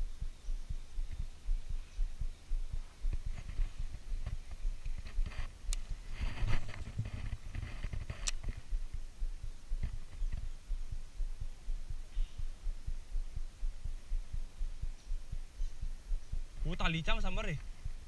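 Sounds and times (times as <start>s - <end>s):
low thumps and rumble: 0.2s - 18.0s
sharp click: 7.9s - 8.6s.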